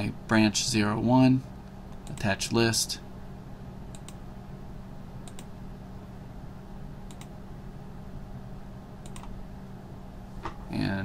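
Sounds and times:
steady low hum: 0.0 - 11.0
computer mouse clicking: 3.9 - 4.2, 5.2 - 5.5, 7.1 - 7.3, 9.0 - 9.4.

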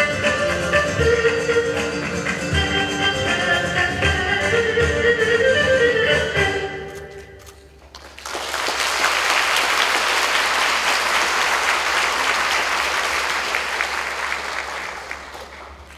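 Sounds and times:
music: 0.0 - 7.2
audience applause: 7.8 - 15.9.

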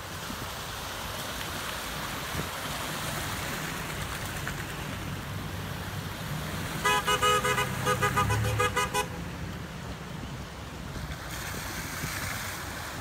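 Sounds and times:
water washing: 0.0 - 8.5
car engine hum: 3.1 - 11.6
car horn short toots: 6.8 - 9.2.

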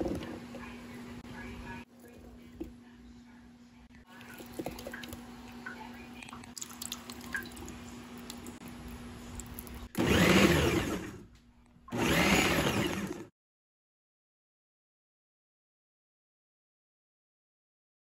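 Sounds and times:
food processor whirring chop: 9.8 - 11.2, 11.9 - 13.3.

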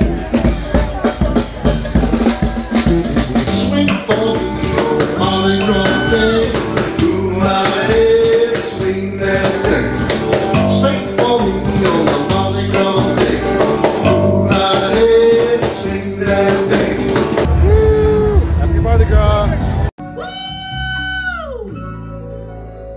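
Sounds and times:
hand drums beat: 0.0 - 17.8
electric guitar: 0.0 - 18.6
electric bass: 0.0 - 22.9
man singing: 3.4 - 17.4.

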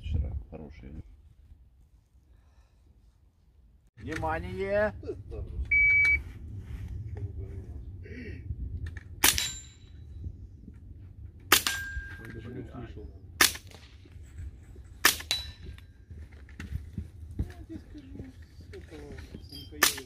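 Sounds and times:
suppressed rifle shots: 9.2 - 9.8
steel target ringing: 11.5 - 12.4.

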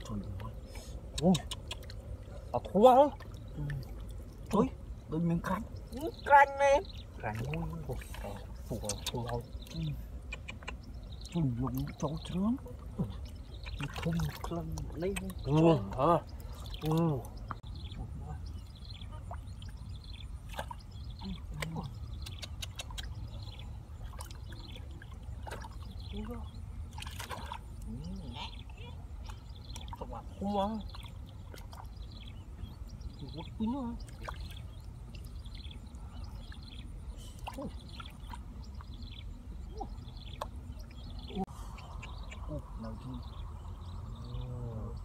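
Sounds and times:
bird singing: 0.0 - 45.0
wet splashes and clicks: 1.1 - 2.2, 7.3 - 12.1, 13.2 - 17.6, 20.4 - 23.4, 26.9 - 27.9, 40.3 - 40.6
steady low rumble: 37.8 - 45.0.

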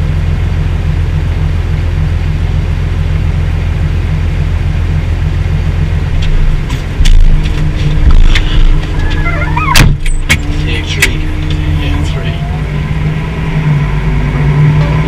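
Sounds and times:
tractor engine humming: 0.0 - 15.0
sharp clicks and knocks: 6.1 - 11.8.

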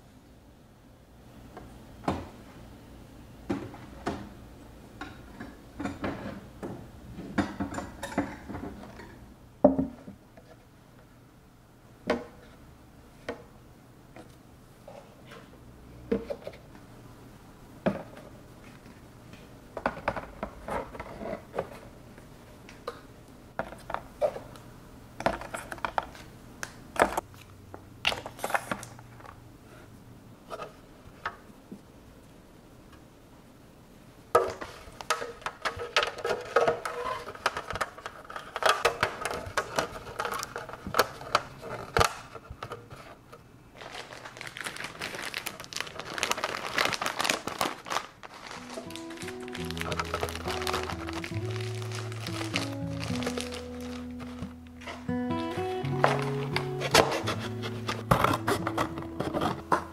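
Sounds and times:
plastic crinkling and clattering: 25.2 - 26.3, 34.4 - 59.9
plastic bag rustling: 34.6 - 59.9.

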